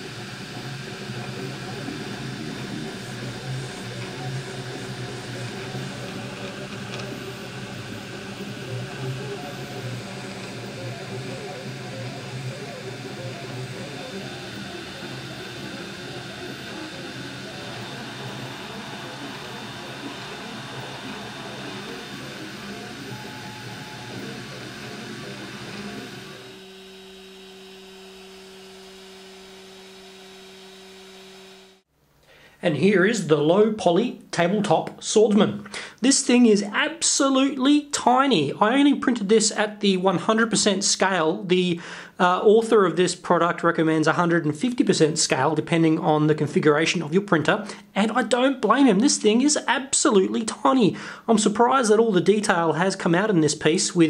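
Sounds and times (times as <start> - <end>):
low motor hum: 0.0 - 31.8
cooling fan whirring: 0.0 - 42.9.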